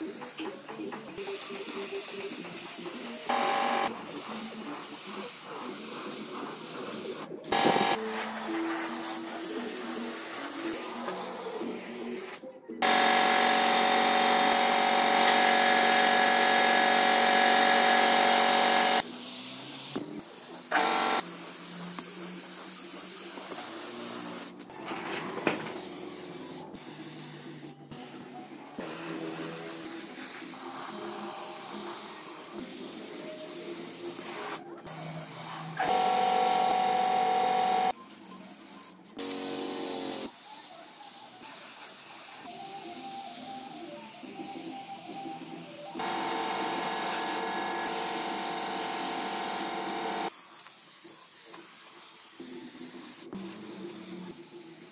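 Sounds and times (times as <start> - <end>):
paint spray gun hissing: 1.6 - 10.7, 12.8 - 19.0, 46.0 - 54.8
spray gun trigger burst: 12.8 - 19.0, 46.0 - 50.3.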